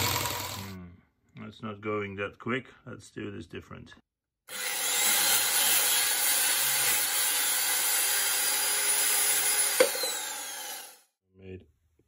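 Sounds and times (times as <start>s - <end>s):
angle grinder cutting metal: 0.0s - 0.8s, 4.5s - 11.0s.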